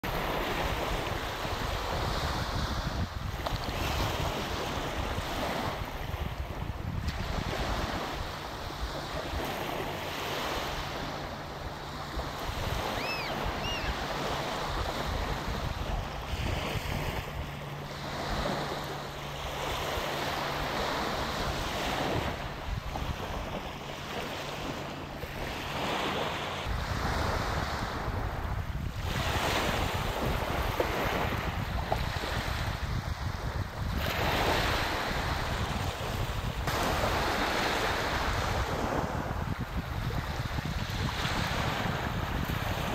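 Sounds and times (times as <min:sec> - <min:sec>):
wind on microphone: 0:00.0 - 0:42.9
faint high chirps: 0:13.0 - 0:14.0.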